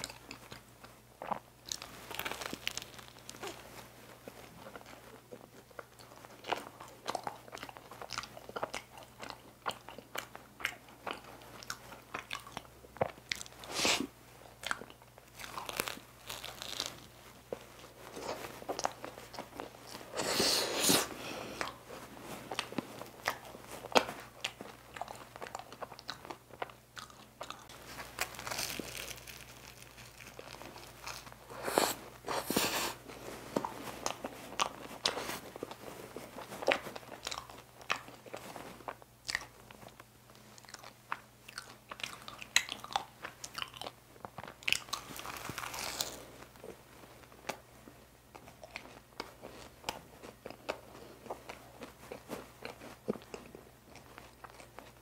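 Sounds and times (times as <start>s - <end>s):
crunchy pastry bites and chewing: 0.0s - 3.6s, 14.4s - 20.2s, 22.5s - 32.7s, 33.5s - 55.0s.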